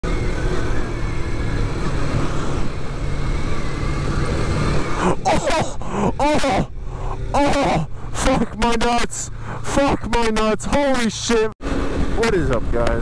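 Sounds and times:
motorcycle engine running: 0.0 - 13.0
man shouting: 5.0 - 11.5.

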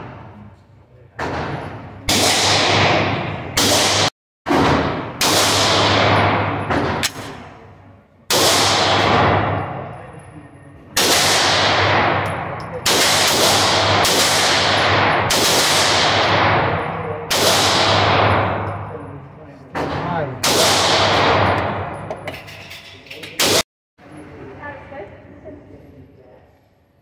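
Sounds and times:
pistol shots echoing indoors: 1.2 - 10.0, 10.9 - 19.0, 19.7 - 22.2
sharp cracks: 11.0 - 16.6.

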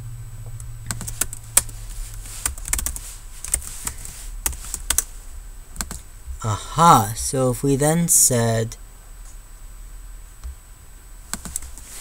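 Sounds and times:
typing on computer keyboard: 2.4 - 3.7.

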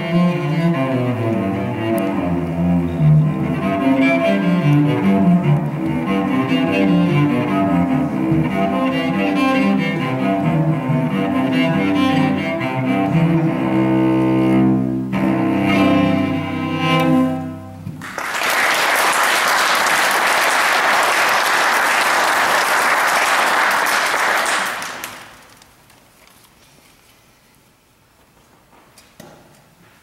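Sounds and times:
solo cello: 0.0 - 18.0
audience applause: 18.0 - 25.6.

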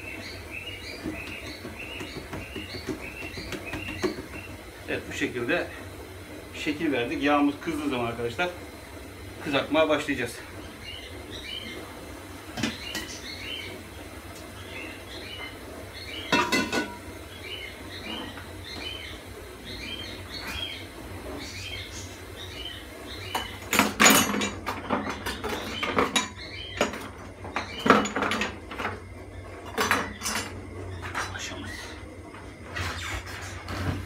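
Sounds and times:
small bird chirping: 0.0 - 4.6.

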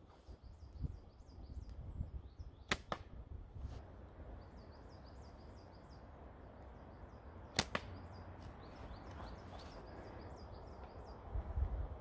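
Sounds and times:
low wind rumble: 0.4 - 12.0
sharp slingshot cracks: 2.7 - 3.2, 7.5 - 8.0.

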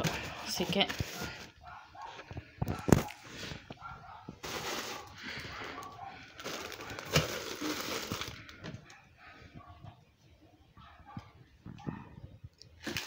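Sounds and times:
packs shuffling: 0.0 - 8.9
plastic wrap crinkling: 4.4 - 8.6.

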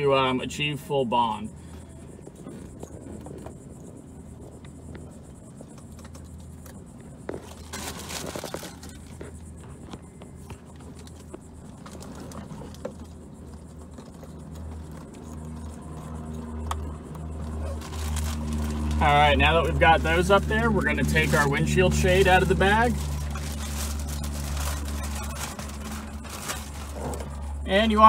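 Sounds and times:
low steady rumble: 0.0 - 28.0.

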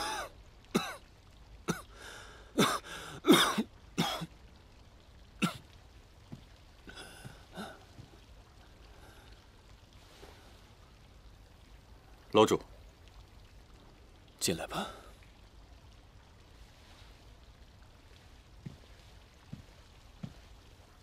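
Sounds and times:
man coughing: 0.0 - 1.0, 2.6 - 4.3.

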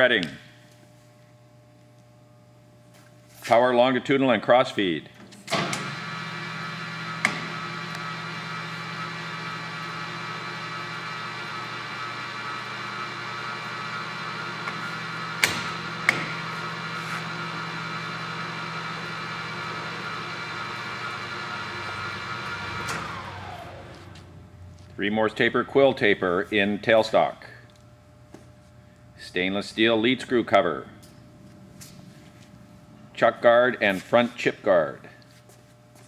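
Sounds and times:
lathe gearing hum and whine: 0.0 - 36.0
lathe feed control clicks: 7.1 - 8.2, 9.7 - 16.4, 19.8 - 24.2.

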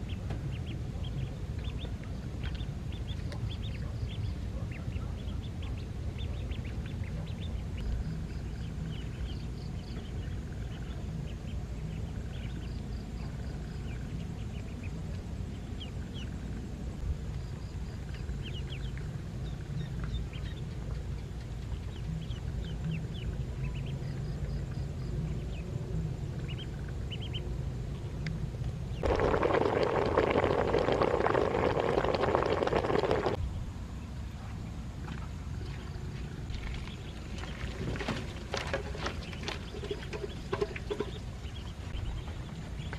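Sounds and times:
ducklings peeping: 0.0 - 16.6, 17.3 - 27.6, 35.6 - 42.9.

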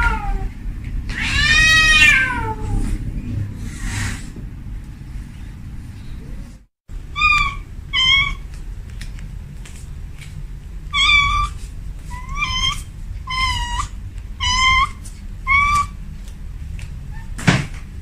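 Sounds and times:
cat meowing: 0.0 - 0.5, 1.1 - 2.9, 7.1 - 8.4, 10.9 - 16.0
low steady rumble: 0.0 - 18.0.

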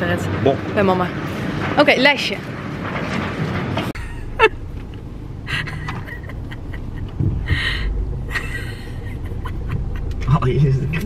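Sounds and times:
low steady car cabin hum: 4.0 - 11.0
woman laughing breathily: 5.5 - 10.2.

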